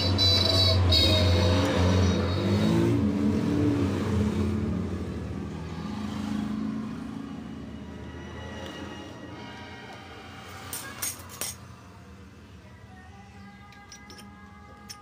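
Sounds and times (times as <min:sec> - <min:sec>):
vehicle engine revving: 0:00.0 - 0:07.7.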